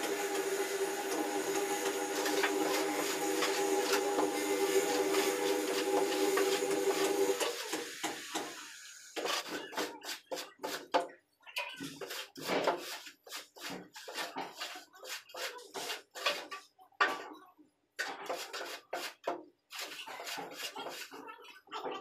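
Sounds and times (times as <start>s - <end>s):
metal straightedge scraping mortar: 0.3s - 7.8s, 9.2s - 11.0s, 11.8s - 16.7s, 18.0s - 21.2s.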